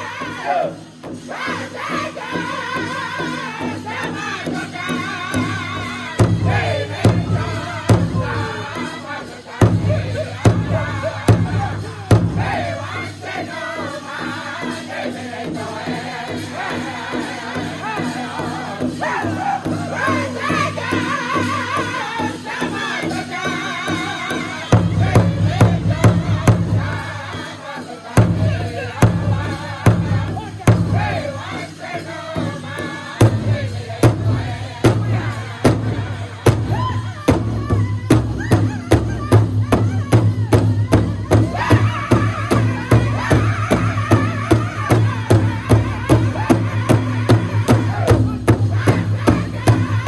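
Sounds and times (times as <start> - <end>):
group singing in unison: 0.0 - 50.0
heavy drum strikes: 3.2 - 8.9, 9.6 - 13.5, 23.9 - 50.0.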